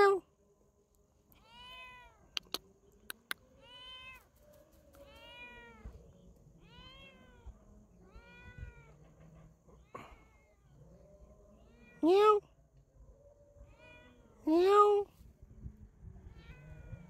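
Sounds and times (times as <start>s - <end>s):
sharp clicks: 2.4s - 3.4s.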